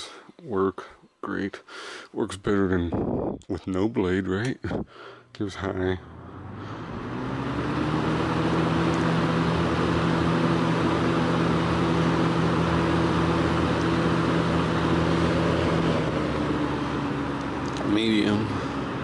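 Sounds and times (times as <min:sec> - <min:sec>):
fan motor hum: 0:02.3 - 0:19.0
box fan rush of air: 0:06.0 - 0:19.0.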